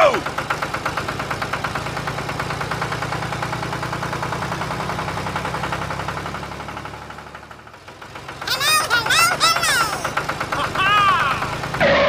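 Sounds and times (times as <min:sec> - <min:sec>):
tractor engine chugging: 0:00.0 - 0:12.0.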